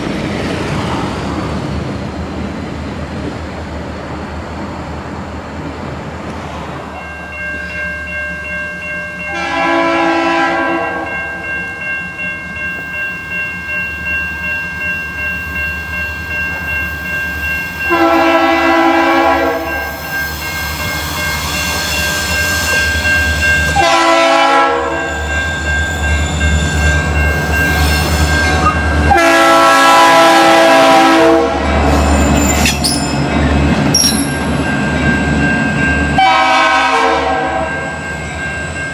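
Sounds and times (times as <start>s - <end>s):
freight train rumbling: 0.0s - 38.9s
truck air horns: 9.3s - 11.1s, 17.9s - 19.7s, 23.8s - 25.0s, 29.1s - 31.6s, 36.2s - 37.7s
train air horn blasts: 9.3s - 11.2s, 17.9s - 20.0s, 23.7s - 25.1s, 27.9s - 31.7s, 36.2s - 37.9s.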